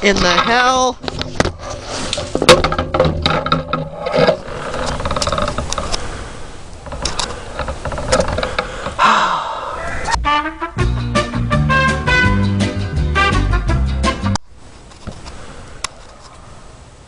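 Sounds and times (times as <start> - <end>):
objects clattering and knocking: 0.0 - 6.0, 6.8 - 9.0.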